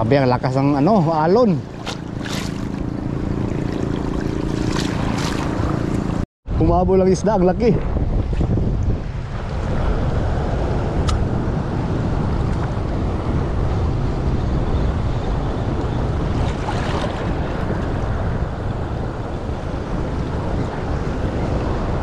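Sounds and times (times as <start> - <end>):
wind rumbling on microphone: 0.0 - 22.0
sea waves washing: 0.4 - 6.2, 7.6 - 22.0
light click: 11.0 - 11.2.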